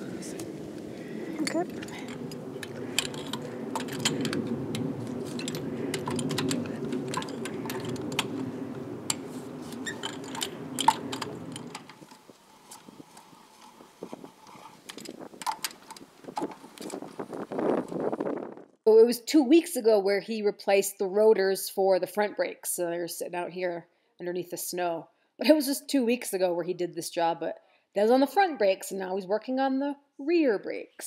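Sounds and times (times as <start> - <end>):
steady low background noise: 0.0 - 16.8.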